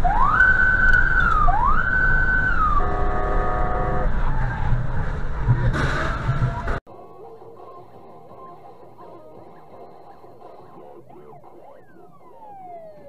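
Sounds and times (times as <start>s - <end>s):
electronic siren wailing: 0.0s - 4.6s, 10.1s - 13.0s
low road rumble: 0.0s - 13.0s
horn-like blast: 2.6s - 4.2s.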